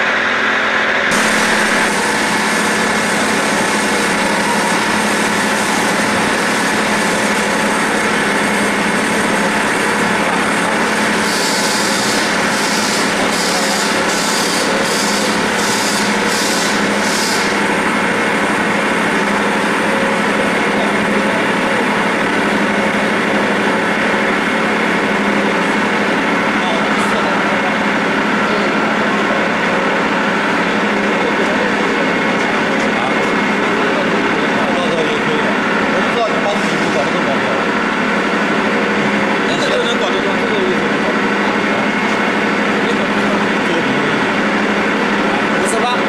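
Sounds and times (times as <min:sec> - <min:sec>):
lathe machine hum with tones: 0:00.0 - 0:46.0
short hissing pulses: 0:11.2 - 0:17.7.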